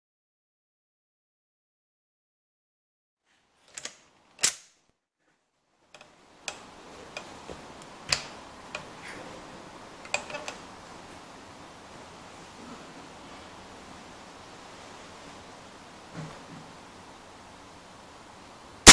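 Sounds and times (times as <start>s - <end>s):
steady hiss: 5.7s - 18.9s.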